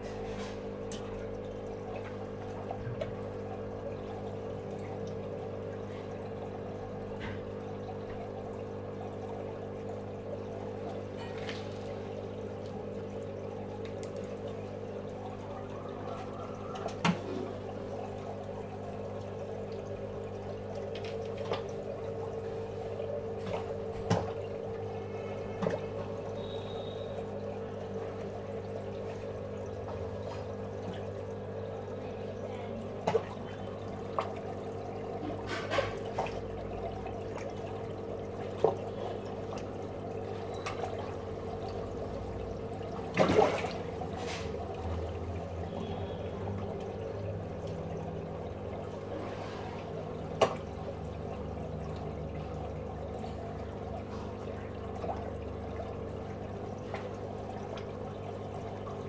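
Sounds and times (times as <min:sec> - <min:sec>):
filter and pump hum: 0:00.0 - 0:59.0
water trickling and bubbling: 0:00.0 - 0:59.0
short sharp splashes: 0:42.9 - 0:44.7.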